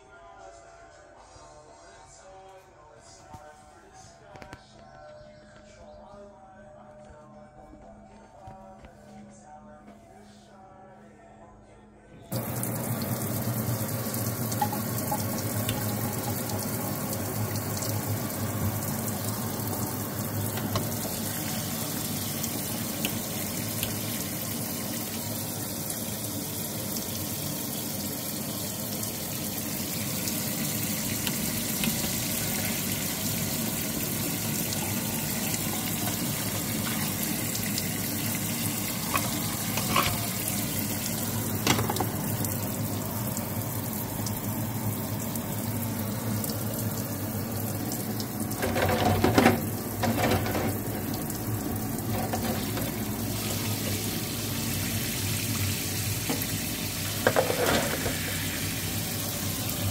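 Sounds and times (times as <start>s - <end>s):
faucet water running into sink: 12.3s - 59.9s.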